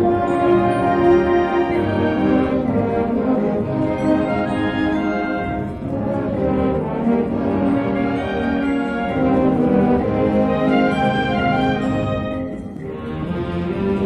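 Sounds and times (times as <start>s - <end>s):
brass band playing held chords: 0.0s - 14.0s.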